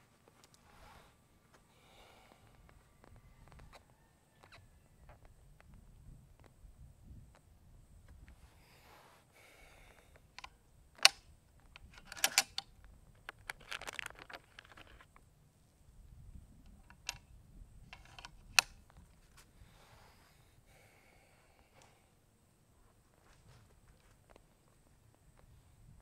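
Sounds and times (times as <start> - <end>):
rifle action metallic clicks: 10.4 - 15.1, 16.8 - 17.3, 17.9 - 18.9
plastic bag rustling: 13.5 - 15.0.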